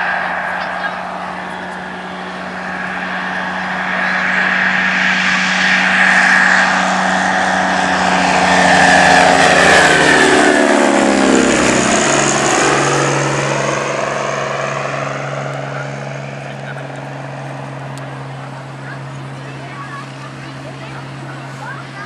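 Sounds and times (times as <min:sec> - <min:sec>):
propeller plane taking off: 0:00.0 - 0:22.0.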